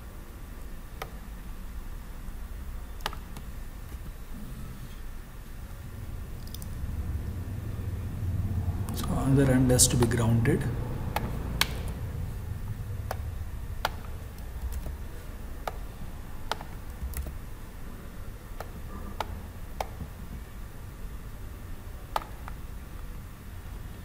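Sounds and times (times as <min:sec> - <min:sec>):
low background hum: 0:00.0 - 0:24.0
computer mouse clicking: 0:03.0 - 0:04.0, 0:06.4 - 0:06.7, 0:11.1 - 0:12.0, 0:13.0 - 0:15.0, 0:15.6 - 0:17.4, 0:18.6 - 0:20.4, 0:22.1 - 0:22.6.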